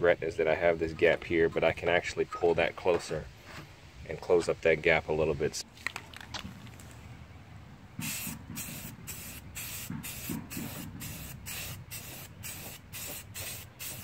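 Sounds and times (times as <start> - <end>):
aerosol spray can hissing: 8.0 - 14.0.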